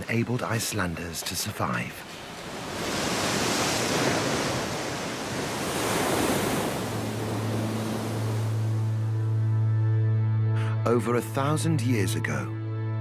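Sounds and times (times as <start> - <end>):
seawater churning: 0.7 - 9.1
low hum: 6.5 - 9.8.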